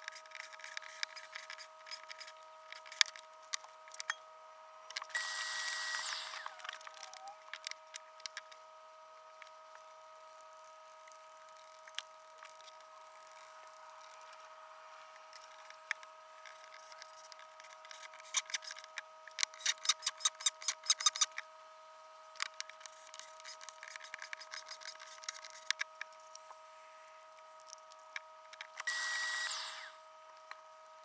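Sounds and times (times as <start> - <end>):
shop vacuum whining: 5.1 - 7.4, 28.8 - 30.0.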